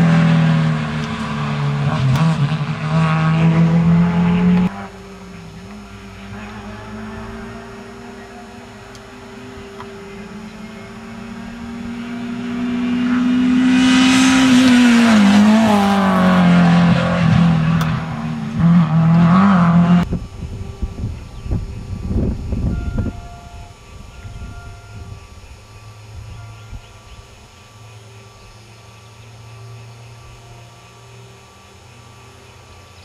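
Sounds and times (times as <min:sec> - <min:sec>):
rally car engine passing by: 0:00.0 - 0:20.1.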